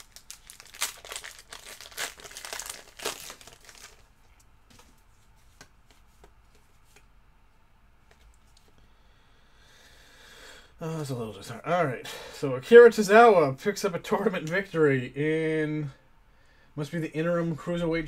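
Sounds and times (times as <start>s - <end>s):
card pack wrapper crinkling and tearing: 0.0s - 4.1s.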